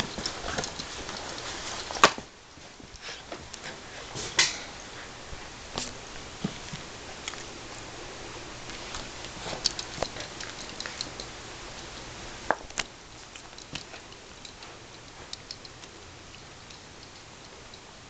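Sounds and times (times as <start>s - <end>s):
dog toys clicking and tapping: 0.0s - 2.2s, 8.7s - 11.4s, 12.5s - 17.9s.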